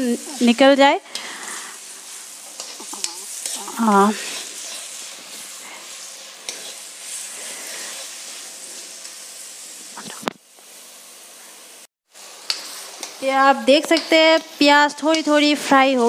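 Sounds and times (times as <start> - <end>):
onions sizzling in oil: 0.0 - 16.0
spatula scraping and knocking pan: 2.4 - 9.2.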